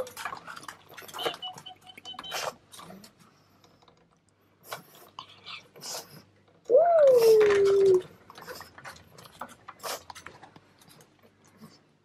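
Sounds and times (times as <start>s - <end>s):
puppy clicks and rustles: 0.0s - 12.0s
puppy whining: 5.2s - 8.7s.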